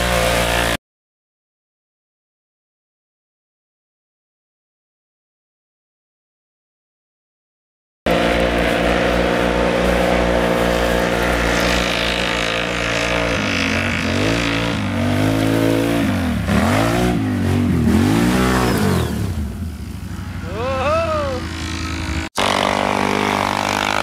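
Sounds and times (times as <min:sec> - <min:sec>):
atv engine revving: 0:00.0 - 0:00.8, 0:08.1 - 0:24.0.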